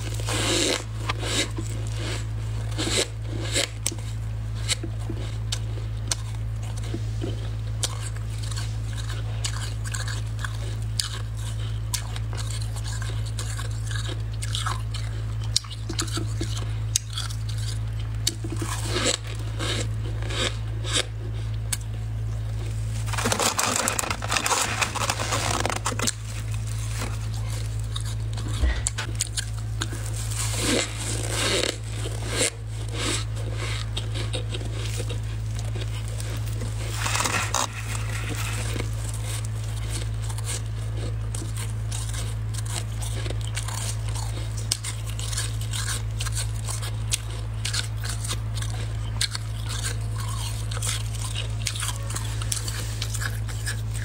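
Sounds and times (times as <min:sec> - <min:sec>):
crunchy frost chewing: 0:00.0 - 0:54.0
steady low hum: 0:00.0 - 0:54.0
plastic glove rustling: 0:22.6 - 0:27.9, 0:28.6 - 0:31.9, 0:35.5 - 0:40.2.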